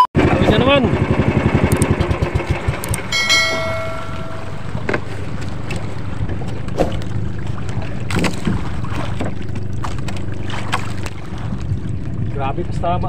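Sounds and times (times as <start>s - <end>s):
boat engine running: 0.2s - 13.0s
bell-like chime: 3.1s - 4.8s.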